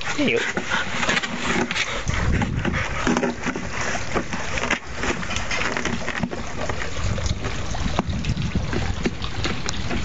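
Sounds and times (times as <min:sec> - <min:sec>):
dog vocal noises: 0:00.0 - 0:07.0
plastic watering can knocks and scrapes: 0:00.4 - 0:10.0.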